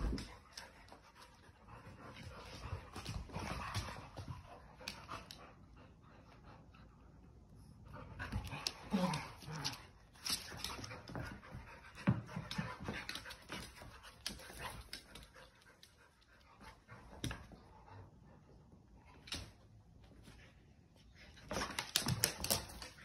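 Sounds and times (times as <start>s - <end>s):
paws clicking on hardwood floor: 0.0s - 5.9s, 7.9s - 18.1s, 21.2s - 23.0s.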